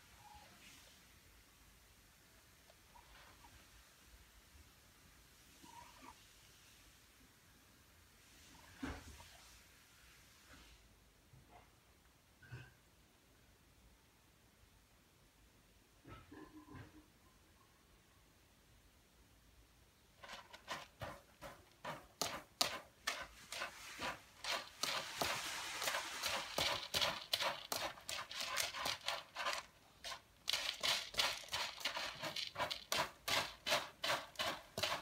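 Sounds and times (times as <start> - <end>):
kitten scratching cat litter: 20.2 - 35.0.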